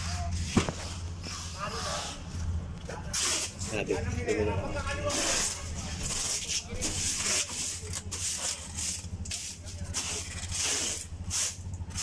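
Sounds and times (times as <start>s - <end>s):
hand broom sweeping: 5.1s - 12.0s.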